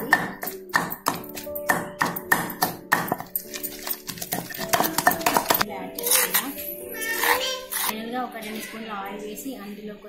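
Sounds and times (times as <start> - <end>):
pestle pounding in stone mortar: 0.0 - 5.6
background music with held tones: 0.0 - 10.0.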